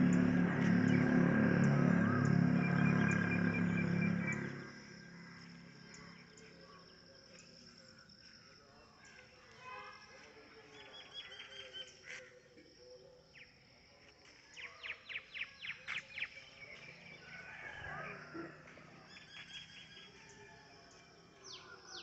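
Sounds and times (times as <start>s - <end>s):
birds chirping: 0.0s - 7.7s.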